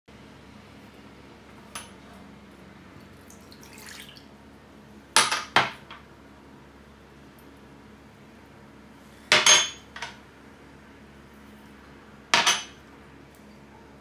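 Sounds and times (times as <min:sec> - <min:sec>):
milk pouring into bowl: 0:03.2 - 0:04.3.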